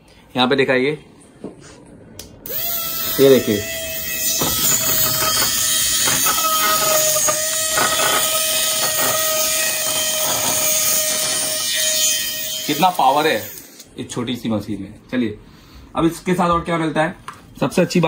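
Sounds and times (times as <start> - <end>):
drilling pen high whine: 2.4 - 13.8.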